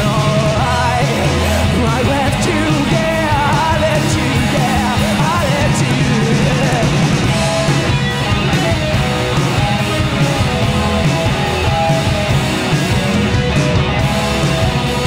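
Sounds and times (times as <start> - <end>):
person singing lead vocal: 0.0 - 7.7
drum kit: 0.0 - 15.0
electric guitars: 0.0 - 15.0.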